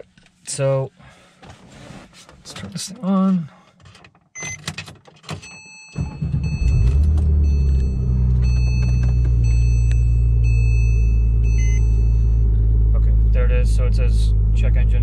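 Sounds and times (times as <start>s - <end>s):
car engine starting and idling: 5.9s - 15.0s.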